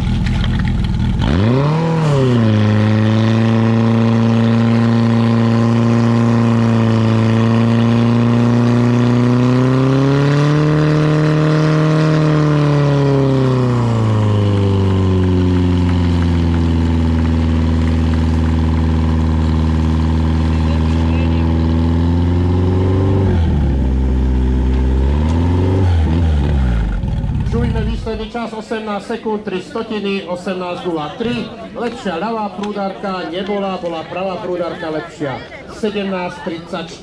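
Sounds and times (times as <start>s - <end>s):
pump engine revving: 0.0s - 28.3s.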